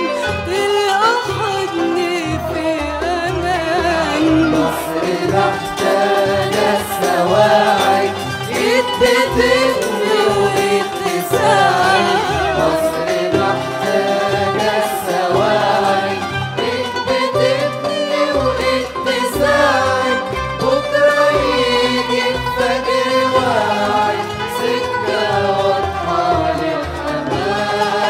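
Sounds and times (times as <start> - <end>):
arabic music ensemble: 0.0 - 28.0
person singing with ornaments: 0.0 - 28.0.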